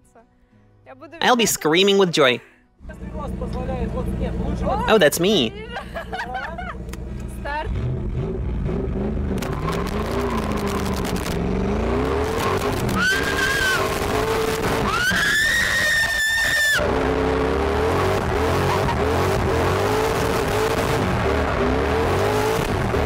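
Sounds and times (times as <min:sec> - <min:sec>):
car engine revving: 0:02.8 - 0:23.0
tyres skidding: 0:06.0 - 0:23.0.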